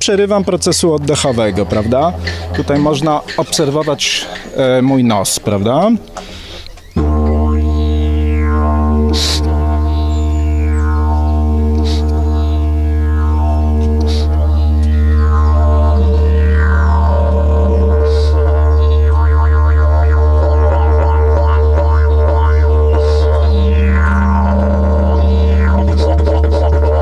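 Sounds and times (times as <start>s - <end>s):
didgeridoo drone: 0.0s - 27.0s.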